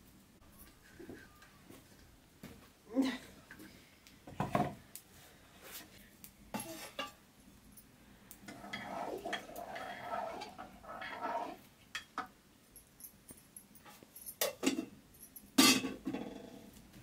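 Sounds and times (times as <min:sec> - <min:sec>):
ladle scraping in metal pot: 0:08.5 - 0:11.6
metal utensils clinking on dishes: 0:15.6 - 0:16.2.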